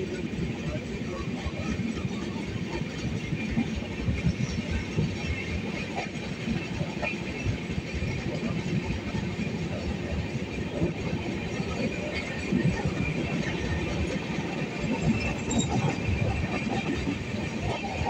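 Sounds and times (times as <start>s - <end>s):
train wheels rumbling on track: 0.0s - 18.0s.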